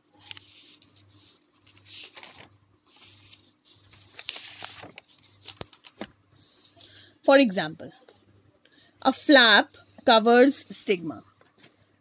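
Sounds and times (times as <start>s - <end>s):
paper page rustling: 0.1s - 6.2s.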